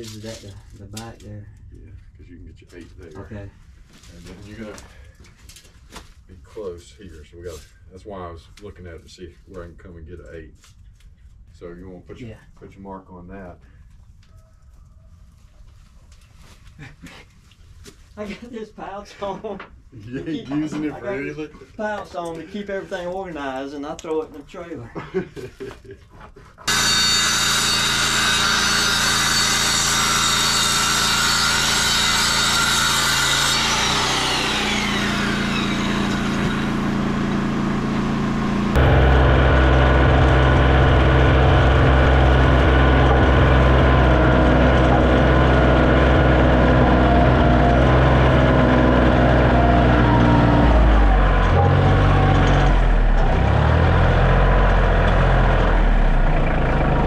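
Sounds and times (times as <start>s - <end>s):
circular saw whine: 26.7s - 57.0s
tractor engine running: 33.8s - 57.0s.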